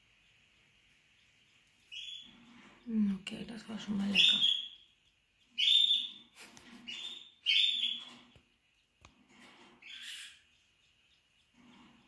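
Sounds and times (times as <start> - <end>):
quails calling: 0.2 - 2.9, 3.9 - 8.2, 9.8 - 12.0.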